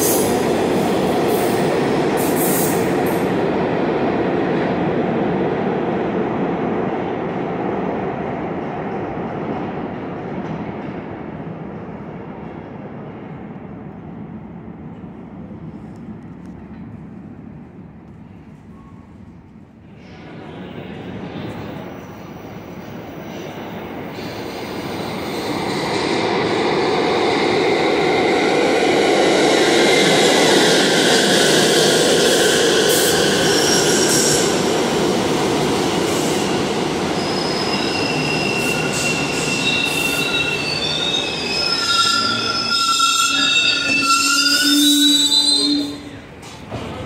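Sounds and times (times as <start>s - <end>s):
train passing: 0.0s - 47.0s
high-pitched wheel squeal: 37.2s - 46.2s.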